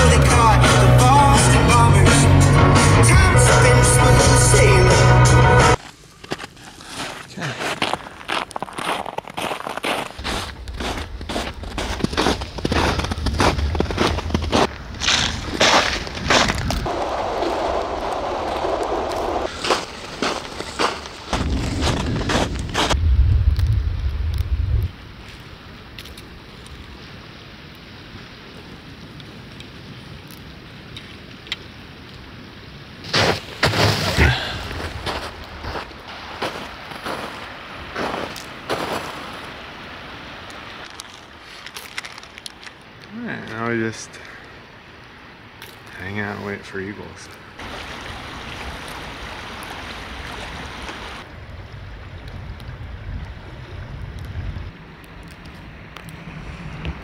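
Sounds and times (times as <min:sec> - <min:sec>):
footsteps in snow: 0:05.8 - 0:23.0, 0:33.0 - 0:39.7, 0:40.8 - 0:42.8
low wind noise: 0:07.8 - 0:45.9, 0:47.0 - 0:57.0
river running over rocks: 0:25.5 - 0:51.3.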